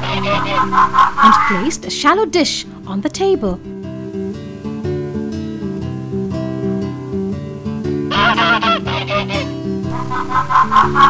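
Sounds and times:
cartoon stork honking call: 0:00.0 - 0:01.8, 0:08.1 - 0:11.0
plucked guitar music: 0:00.0 - 0:11.0.

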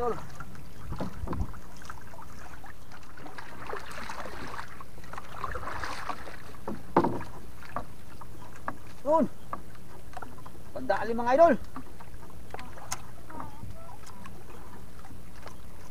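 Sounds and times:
water around boat: 0:00.0 - 0:15.9
wind: 0:00.0 - 0:15.9
light knocks on boat: 0:00.9 - 0:01.6, 0:06.0 - 0:10.5.

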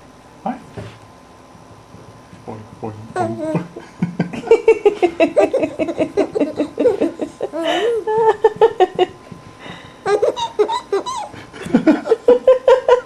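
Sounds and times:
baby laughing: 0:03.2 - 0:03.8, 0:04.4 - 0:09.2, 0:10.0 - 0:13.0.

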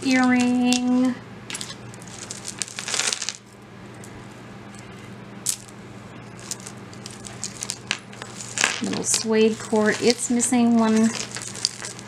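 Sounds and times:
metal jewelry clinking: 0:06.4 - 0:12.0.

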